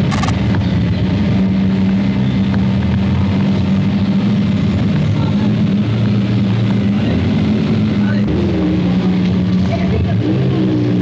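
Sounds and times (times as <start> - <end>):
car engine running: 0.0 - 0.3.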